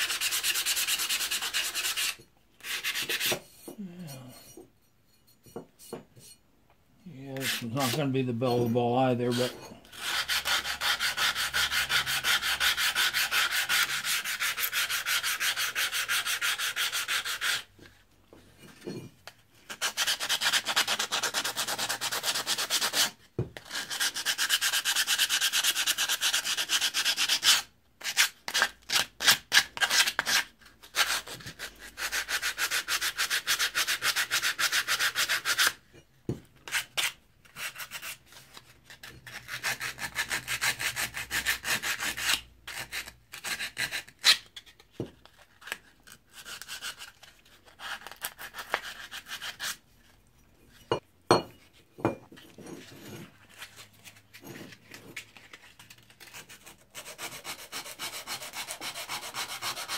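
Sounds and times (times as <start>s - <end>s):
sandpaper rubbing steel: 0.0s - 3.3s, 7.4s - 8.2s.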